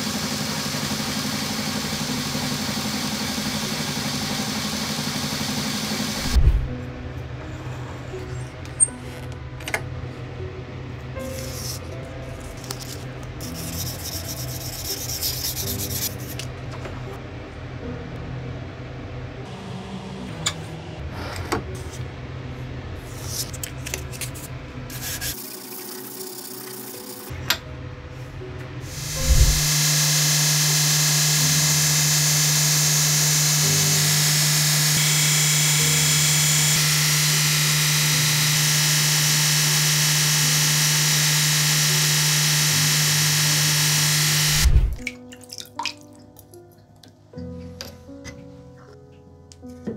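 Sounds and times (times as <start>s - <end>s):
electric motor hum: 0.0s - 6.8s, 28.8s - 45.0s
abrasive belt hissing: 28.9s - 30.6s.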